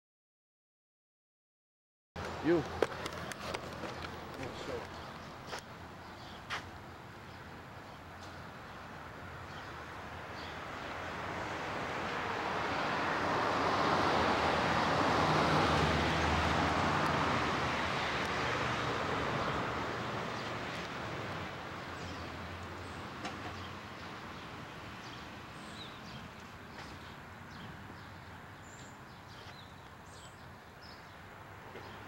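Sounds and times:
vehicle passing by: 10.4s - 30.4s.

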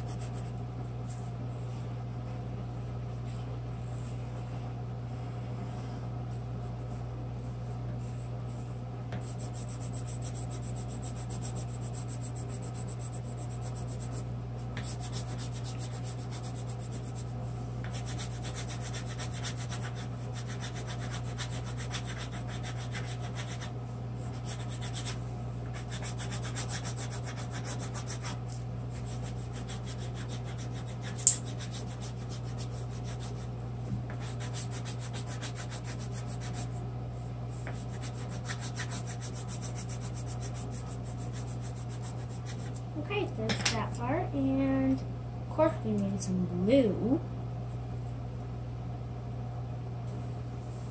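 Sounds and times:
steady low hum: 0.0s - 50.9s
pencil scratching on paper: 8.0s - 14.2s, 14.8s - 17.3s, 17.9s - 33.5s, 34.1s - 36.8s, 37.5s - 42.8s.

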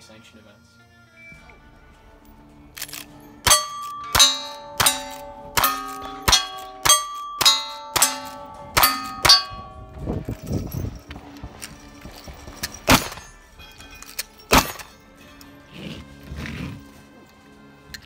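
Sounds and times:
bullet ringing steel target: 2.9s - 15.2s
rifle shots: 12.8s - 13.3s, 14.5s - 15.0s.

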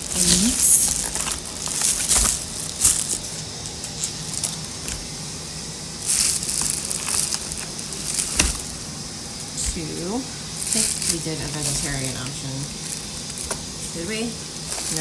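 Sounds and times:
foil liner crinkling: 0.0s - 5.1s, 6.0s - 15.0s
cardboard being handled: 6.1s - 8.9s.

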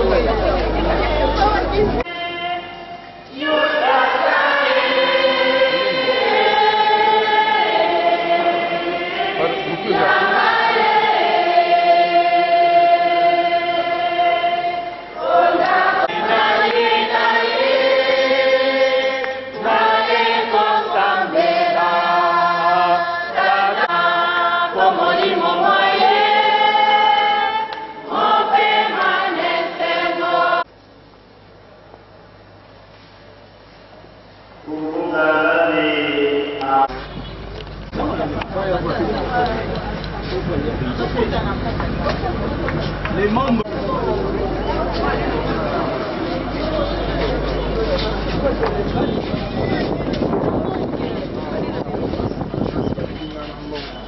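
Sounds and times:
choir singing long held notes: 2.0s - 30.7s, 34.6s - 37.0s.

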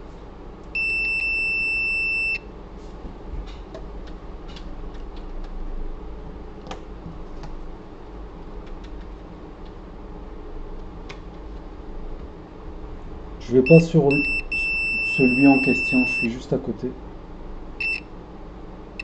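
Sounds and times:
multimeter high beep: 0.8s - 2.4s, 13.6s - 16.4s, 17.8s - 18.1s.

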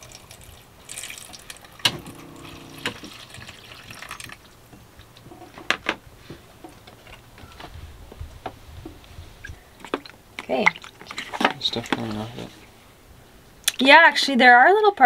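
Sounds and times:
tap water running into plastic tub: 0.0s - 4.8s.

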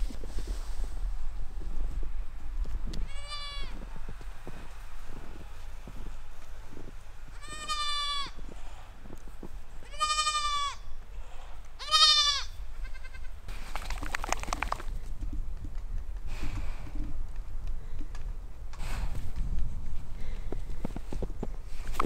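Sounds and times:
goat bleating: 3.1s - 3.8s, 7.3s - 8.4s, 9.8s - 10.8s, 11.8s - 13.4s.

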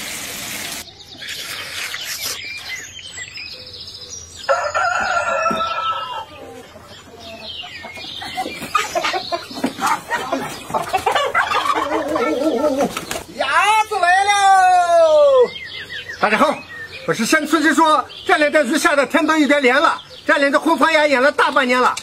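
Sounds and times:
rooster crowing: 4.4s - 6.6s
chickens clucking and squawking: 4.5s - 13.4s.

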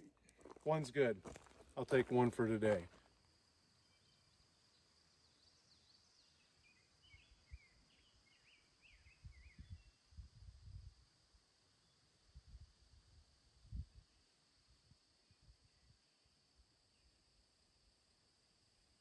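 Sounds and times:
small bird chirping: 3.8s - 10.0s.

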